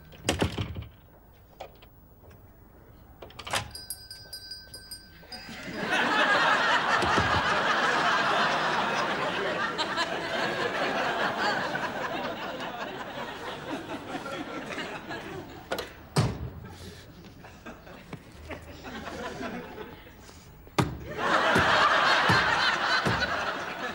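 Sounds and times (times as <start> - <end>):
shop-door bell ringing: 3.4 - 6.9
studio audience laughter: 5.4 - 15.8, 16.6 - 20.3, 21.0 - 23.9.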